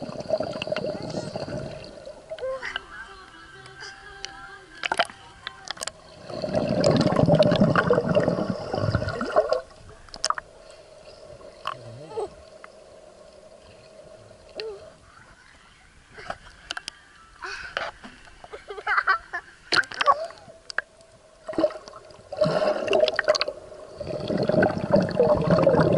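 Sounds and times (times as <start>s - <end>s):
water churning and splashing: 0.0s - 2.8s, 4.8s - 10.6s, 21.4s - 25.9s
steady hum: 0.0s - 25.9s
faint clicks: 2.3s - 6.1s, 16.2s - 18.4s.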